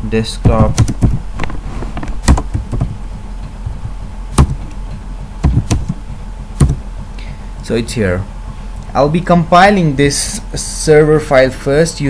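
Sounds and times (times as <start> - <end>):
keyboard key clicks: 5.4 - 6.0.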